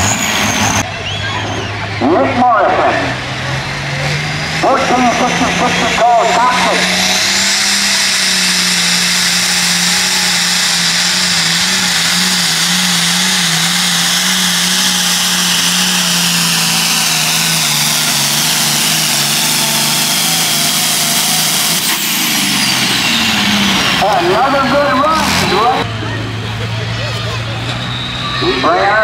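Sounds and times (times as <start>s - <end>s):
diesel tractor engine under load: 0.0s - 29.0s
high turbo whine: 0.0s - 29.0s
sharp falling whistle: 0.9s - 1.8s.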